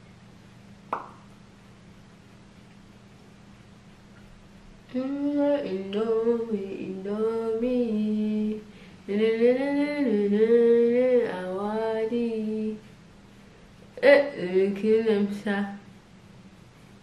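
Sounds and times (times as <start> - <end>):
person singing unaccompanied: 4.9 - 12.9, 14.0 - 15.8.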